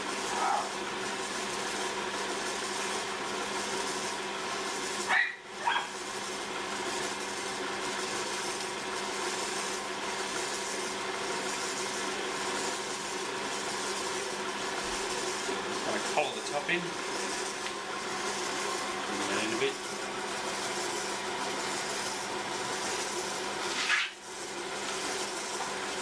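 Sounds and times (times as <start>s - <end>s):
potter's wheel humming: 0.0s - 26.0s
dog barking: 5.1s - 5.9s.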